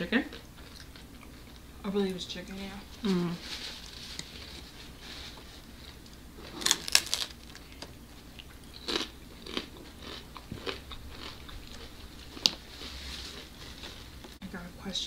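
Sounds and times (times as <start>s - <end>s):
crunching of fried food: 3.6s - 14.4s.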